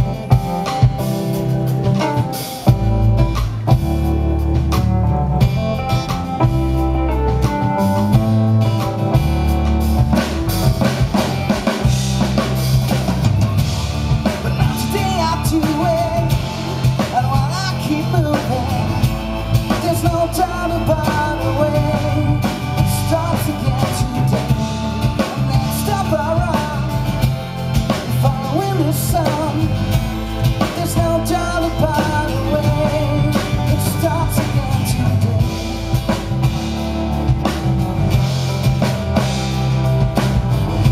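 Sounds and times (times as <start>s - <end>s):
drum kit: 0.0s - 40.9s
keyboard: 0.0s - 40.9s
man singing: 13.5s - 36.2s.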